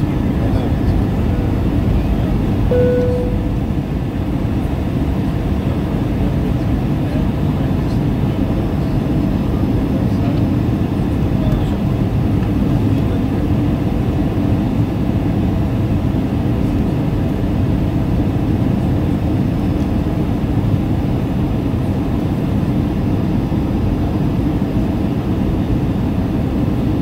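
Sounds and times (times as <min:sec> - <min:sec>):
jet engine cabin rumble: 0:00.0 - 0:27.0.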